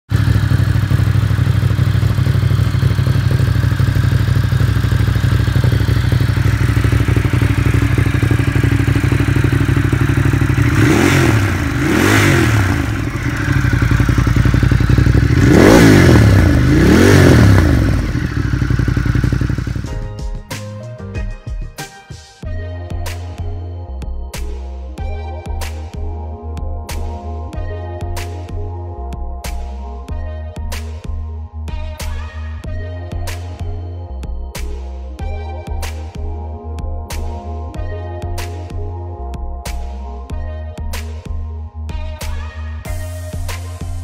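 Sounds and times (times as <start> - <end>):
motorcycle engine idling: 0.1 - 20.2
engine revving in blips: 4.7 - 19.9.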